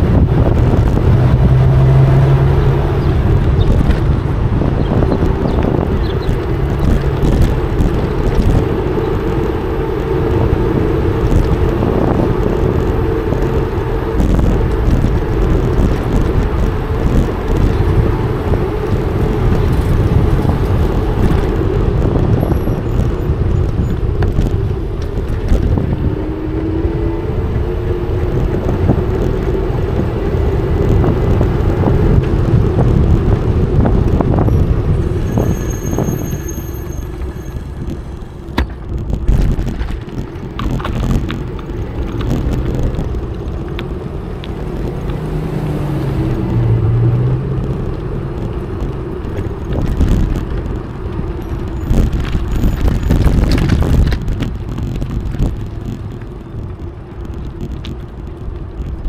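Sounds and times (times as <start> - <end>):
road and traffic noise: 0.0 - 59.0
wind noise on microphone: 0.0 - 59.0.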